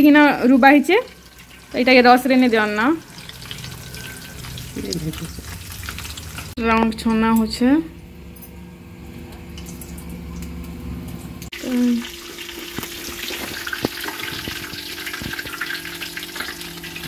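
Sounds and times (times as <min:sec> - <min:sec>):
hot oil sizzling: 0:00.0 - 0:06.6, 0:11.4 - 0:17.0.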